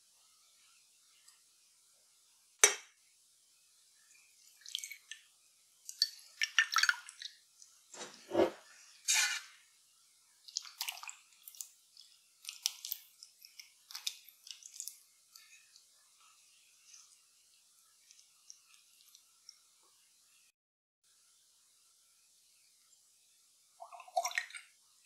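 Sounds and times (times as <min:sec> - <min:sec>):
soft splats and drips: 0:04.0 - 0:08.2, 0:10.4 - 0:20.1.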